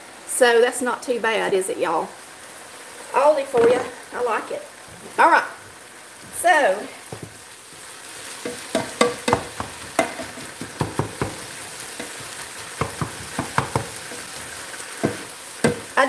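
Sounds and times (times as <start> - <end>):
meat sizzling in a pan: 0.0 - 16.0
utensil scraping and tapping pan: 8.4 - 16.0.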